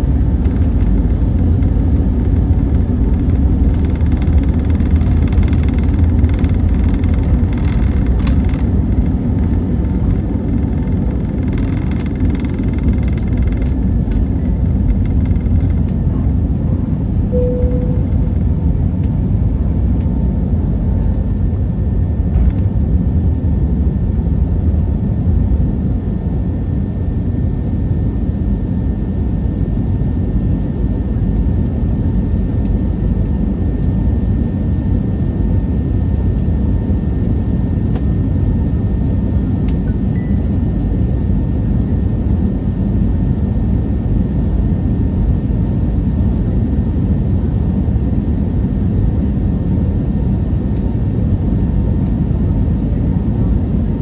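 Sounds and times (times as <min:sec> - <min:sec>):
airplane cabin engine rumble: 0:00.0 - 0:54.0
short single tone: 0:17.3 - 0:18.4, 0:40.1 - 0:40.4.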